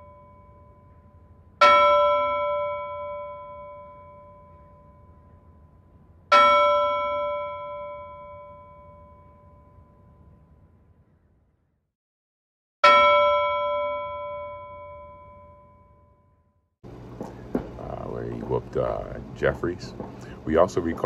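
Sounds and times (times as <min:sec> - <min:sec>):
bell ringing: 0:00.0 - 0:10.7, 0:12.8 - 0:16.4.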